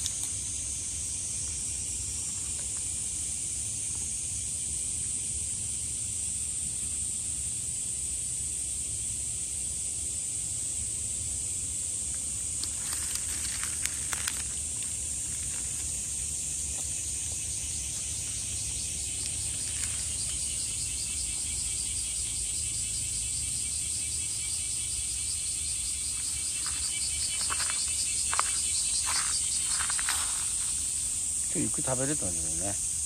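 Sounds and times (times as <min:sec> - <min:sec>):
insect pulsing trill: 0:00.0 - 0:33.0
insects droning: 0:00.0 - 0:33.0.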